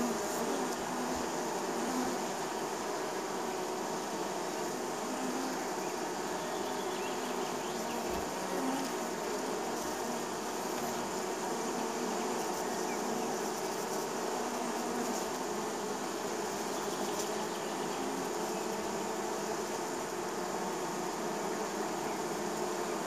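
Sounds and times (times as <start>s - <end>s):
bees buzzing: 0.0s - 23.0s.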